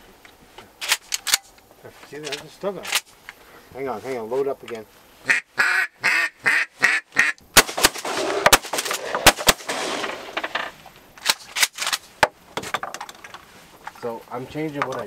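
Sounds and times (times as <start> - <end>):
duck call quacks: 5.2 - 7.4
shotgun shots: 7.6 - 10.5.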